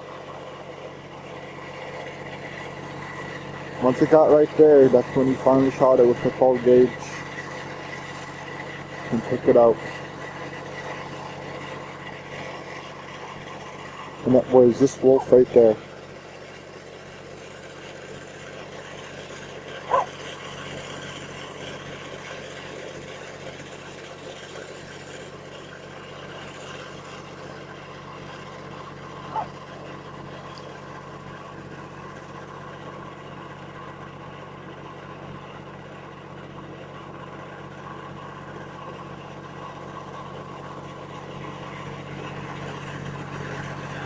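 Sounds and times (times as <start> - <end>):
engine running: 0.0 - 44.0
high yip: 19.9 - 20.1, 29.3 - 29.5.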